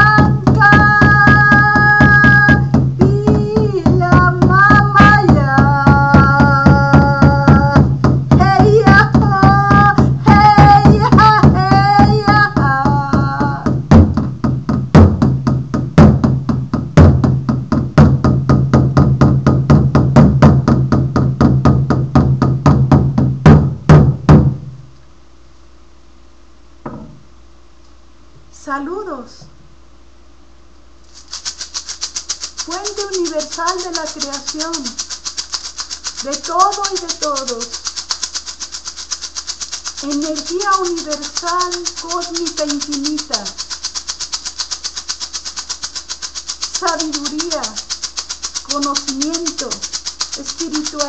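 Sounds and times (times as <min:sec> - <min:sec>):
woman singing a chant: 0:00.0 - 0:13.8, 0:32.7 - 0:35.0, 0:36.2 - 0:37.8, 0:40.0 - 0:43.6, 0:46.8 - 0:47.8, 0:48.7 - 0:49.8, 0:50.4 - 0:51.0
hand drum beating: 0:00.0 - 0:24.8, 0:31.2 - 0:51.0.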